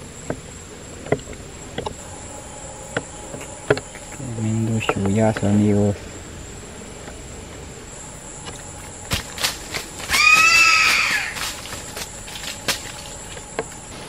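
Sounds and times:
insects buzzing: 0.0 - 14.0
high-pitched animal call: 10.1 - 11.6.

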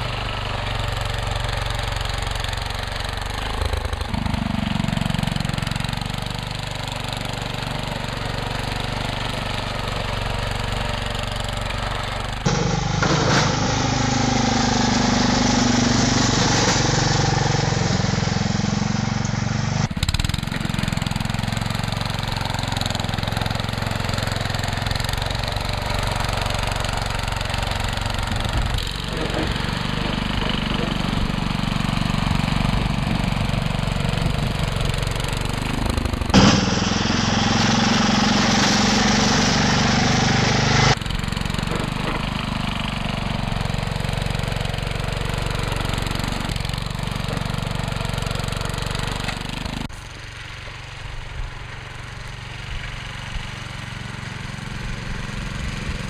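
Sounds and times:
garden tractor engine running: 0.0 - 56.0
blade pushing snow: 6.8 - 19.9, 20.5 - 41.0.

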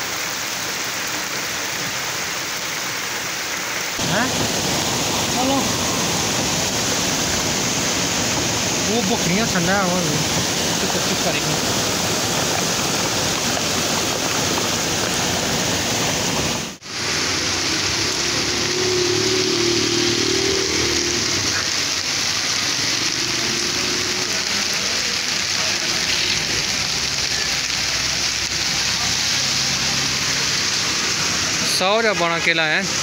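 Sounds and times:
floodwater rushing in gutter: 0.0 - 33.0
heavy rain pouring: 0.0 - 33.0
rain on wet street: 0.0 - 33.0
vehicle engine humming: 17.0 - 28.9.

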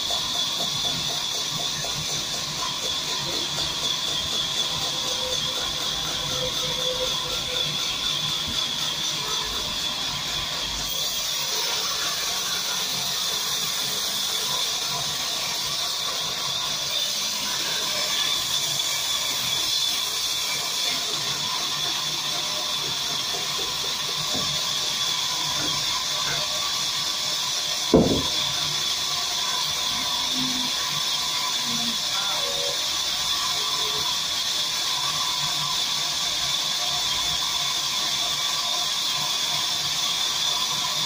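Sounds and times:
band saw whining: 0.0 - 41.0
sharp knock: 27.9 - 28.6.

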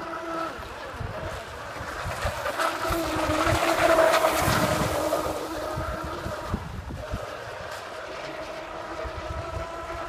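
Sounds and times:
model boat motor whine: 0.0 - 10.0.

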